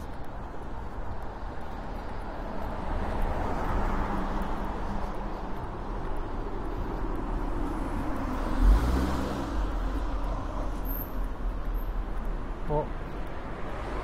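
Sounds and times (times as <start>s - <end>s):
rumble of road traffic: 0.0s - 14.0s
car passing close by: 8.2s - 10.7s.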